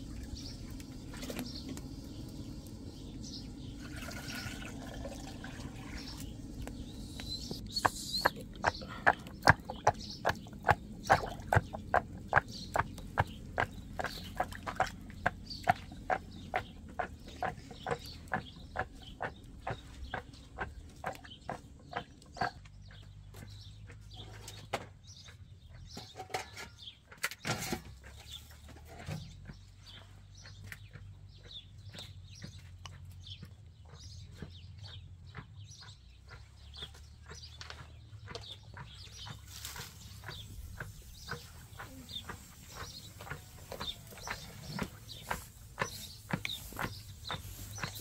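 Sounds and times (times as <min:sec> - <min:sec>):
steady low hum: 0:00.0 - 0:21.0
small birds chirping: 0:00.0 - 0:48.0
chickens clucking: 0:00.2 - 0:24.6, 0:33.8 - 0:48.0.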